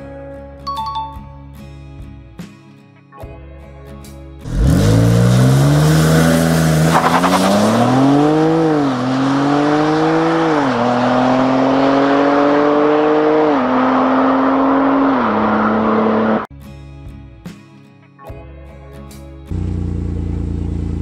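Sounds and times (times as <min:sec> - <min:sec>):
car engine accelerating: 0:04.4 - 0:16.5, 0:19.5 - 0:21.0.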